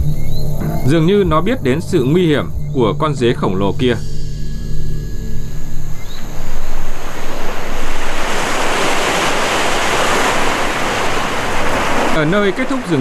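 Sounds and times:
ocean surf breaking on beach: 6.7s - 13.0s.

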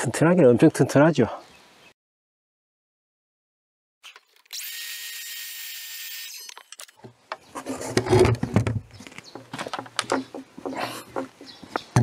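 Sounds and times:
cordless power tool whining: 4.4s - 6.7s.

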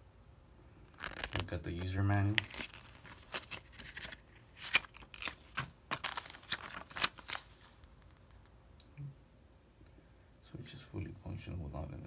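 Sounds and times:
plastic bag and paper rustling: 0.9s - 8.4s.

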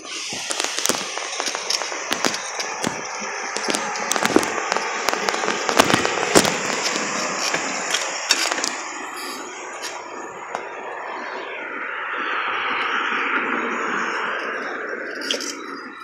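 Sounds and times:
bike rattling over bumps: 0.0s - 9.1s
bicycle rolling noise: 0.0s - 11.2s
wind and road noise: 0.0s - 16.0s.

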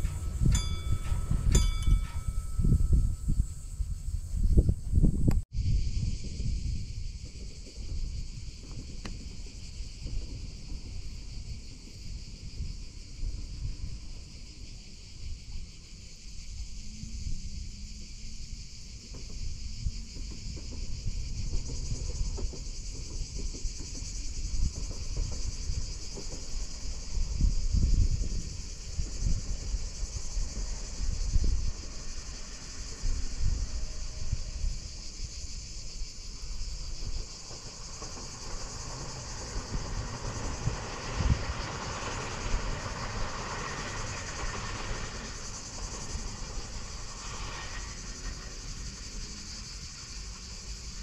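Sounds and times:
high-pitched insect chorus: 0.0s - 51.0s
wind rumbling on microphone: 0.0s - 51.0s.

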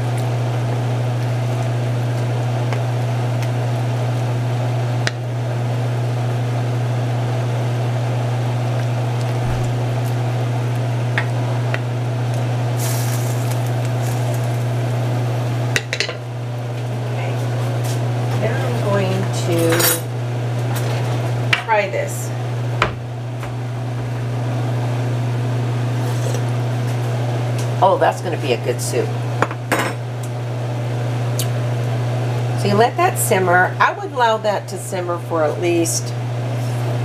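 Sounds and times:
loud low hum: 8.9s - 15.6s, 21.7s - 26.0s, 36.6s - 37.0s.

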